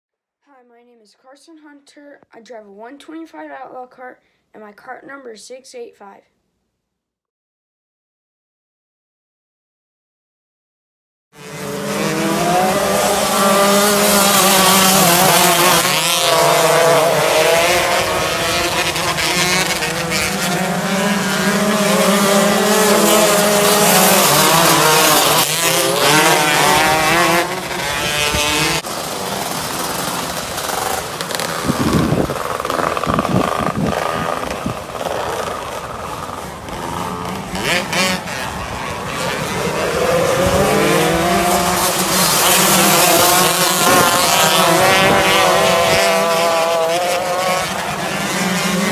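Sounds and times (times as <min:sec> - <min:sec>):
kart engines revving: 0:11.4 - 0:48.9.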